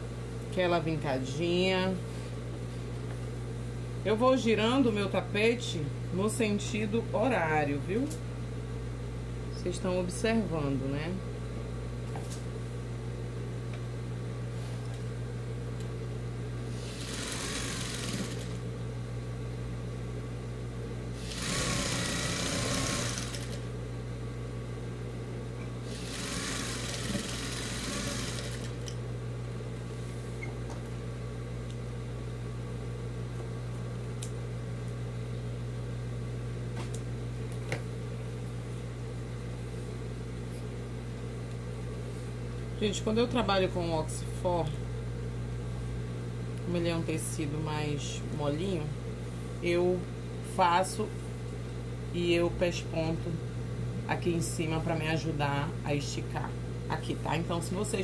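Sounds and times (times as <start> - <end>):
steady low hum: 0.0 - 58.0
sewing machine stitching: 16.9 - 18.6, 21.2 - 23.6, 25.9 - 28.9.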